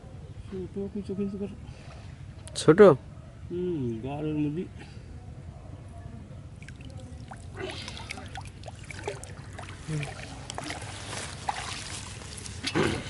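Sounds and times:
low steady rumble: 0:00.0 - 0:12.6
muddy water splashing: 0:06.6 - 0:13.0.

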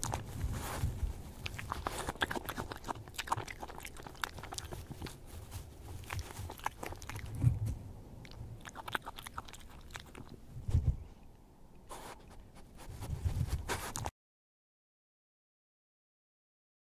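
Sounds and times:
animal crunching and chewing nuts: 0:00.0 - 0:10.4, 0:11.9 - 0:14.1.

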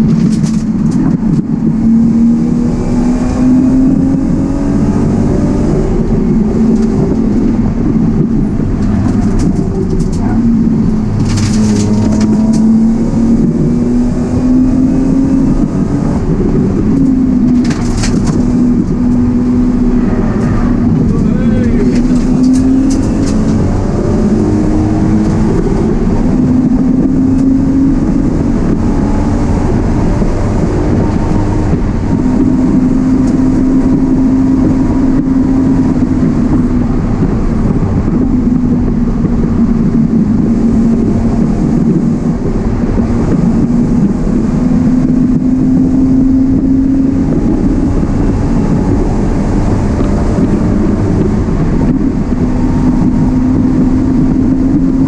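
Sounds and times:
car engine accelerating: 0:00.0 - 0:55.0
road and tyre rumble: 0:00.0 - 0:55.0.

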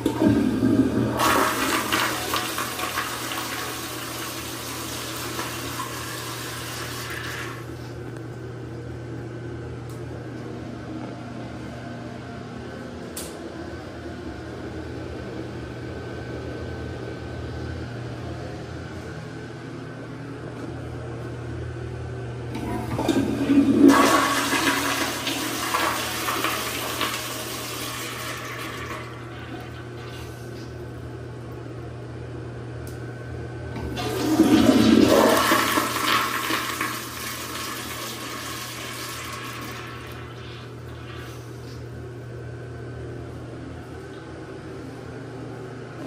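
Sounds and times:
toilet flushing: 0:00.0 - 0:07.8, 0:22.5 - 0:30.7, 0:33.7 - 0:41.5
steady low hum: 0:06.6 - 0:46.0.

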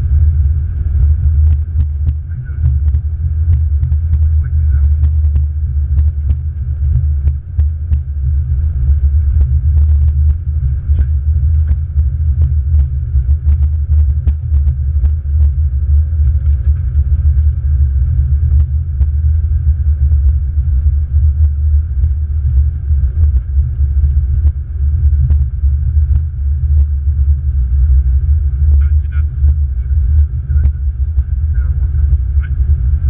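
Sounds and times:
airplane rolling on runway: 0:16.1 - 0:20.0, 0:28.2 - 0:33.0.

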